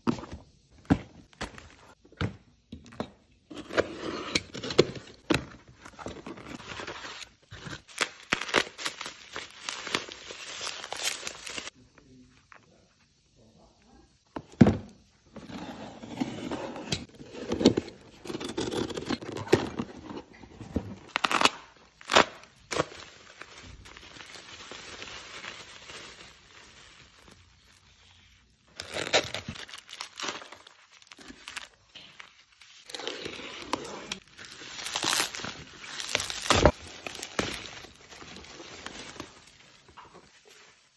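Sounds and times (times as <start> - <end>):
plastic packaging crinkling and tearing: 6.5 - 11.8, 21.0 - 40.9.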